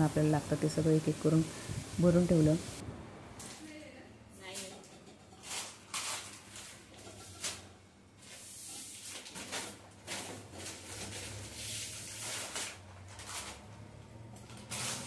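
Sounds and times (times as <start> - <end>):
plastic bags rustling and crinkling: 5.4 - 15.0.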